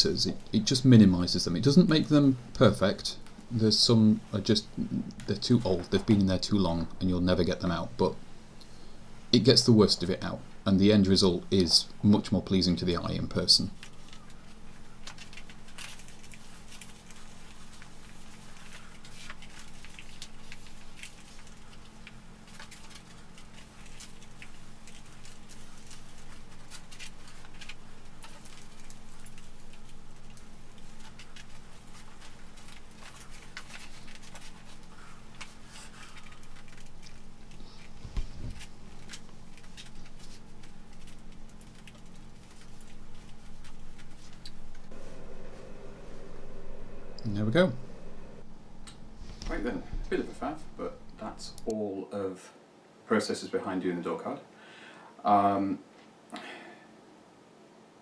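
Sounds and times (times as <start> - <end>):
faint steady hum: 0.0 - 58.0
tea towel rustling: 13.6 - 47.2.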